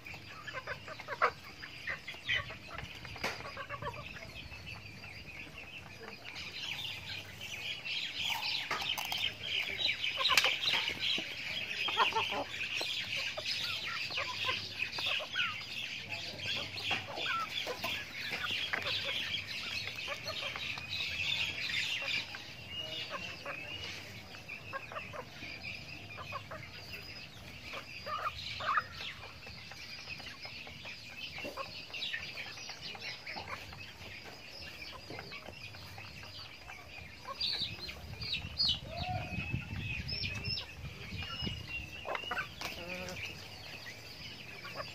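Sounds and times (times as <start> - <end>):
young chickens clucking and peeping: 0.0 - 44.9.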